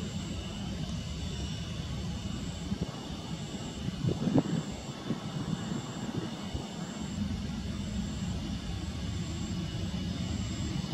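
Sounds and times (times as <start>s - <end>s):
jet engines low rumble: 0.0s - 10.9s.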